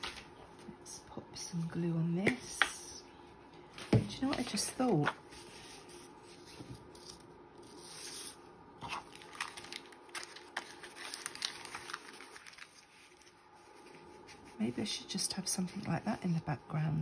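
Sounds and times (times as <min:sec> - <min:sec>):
paper taps and rustles: 0:03.8 - 0:05.2.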